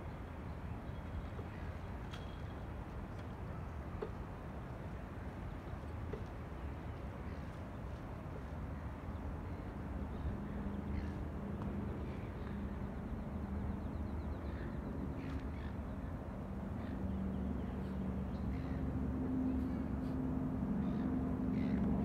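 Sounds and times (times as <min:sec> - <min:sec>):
low machine hum: 0:09.4 - 0:22.0.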